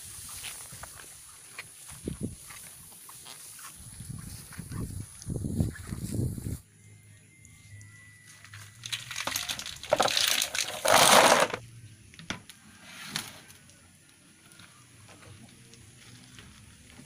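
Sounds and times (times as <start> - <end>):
snail shells rattling into plastic basin: 8.8 - 11.6.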